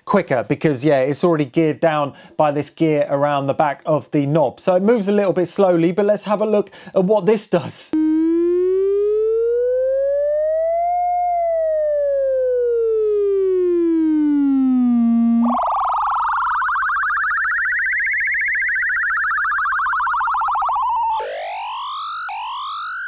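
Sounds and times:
oscillator tone sweeping in pitch: 8.0s - 23.0s.

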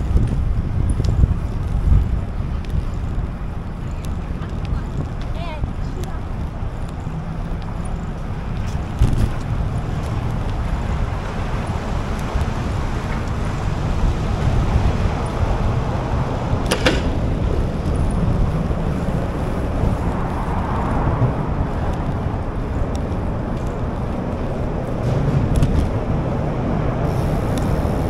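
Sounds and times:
wind rushing over microphone: 0.0s - 28.0s
sharp click: 16.6s - 17.2s.

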